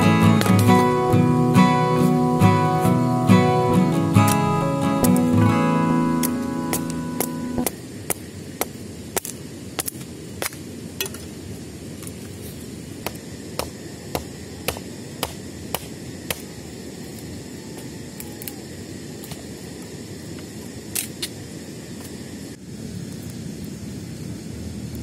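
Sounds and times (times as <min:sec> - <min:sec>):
river rushing: 0:00.0 - 0:07.7.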